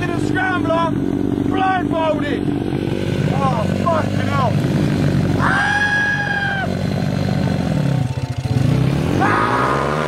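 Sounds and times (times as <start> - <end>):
dirt bike engine revving: 0.0 - 10.0
person shouting: 5.4 - 6.8, 9.2 - 9.9.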